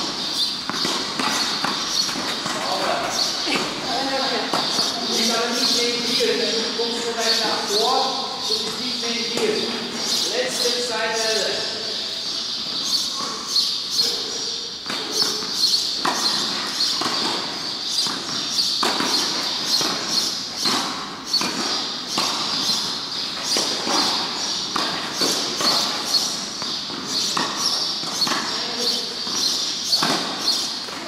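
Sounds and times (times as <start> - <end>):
ball bouncing on clay: 0.0 - 7.1
racket hitting tennis ball: 0.0 - 7.9, 14.8 - 31.0.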